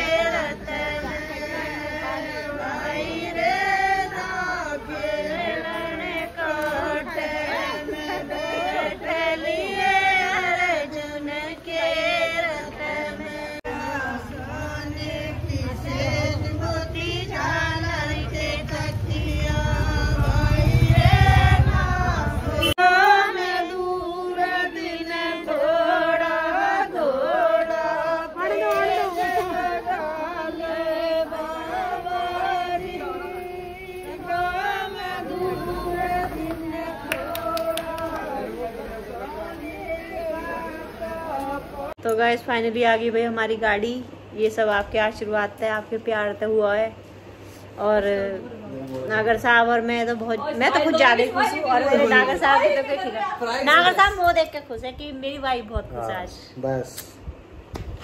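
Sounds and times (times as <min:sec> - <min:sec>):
women singing unaccompanied: 0:00.0 - 0:47.1, 0:47.7 - 0:55.9.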